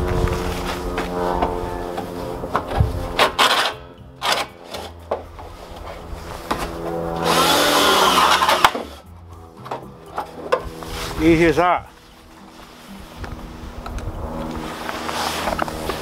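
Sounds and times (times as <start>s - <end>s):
cordless drill boring into plastic: 7.2s - 9.0s.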